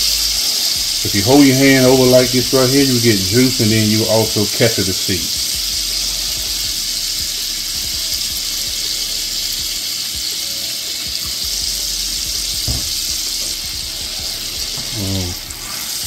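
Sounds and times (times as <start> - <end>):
sauce sizzling in a frying pan: 0.0 - 16.0
light knock: 12.7 - 13.0.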